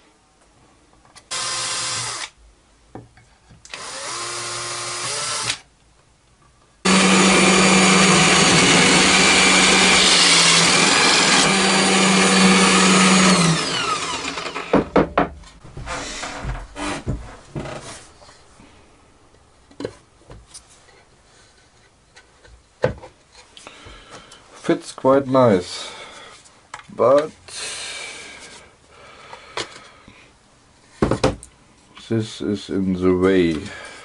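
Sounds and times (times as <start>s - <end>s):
drill press boring wood: 1.3s - 2.3s, 3.7s - 5.6s, 6.9s - 14.9s
power tool motor bursts: 1.3s - 2.4s, 3.7s - 5.6s, 6.9s - 14.7s
wooden board knocks: 14.7s - 17.7s, 31.0s - 31.4s.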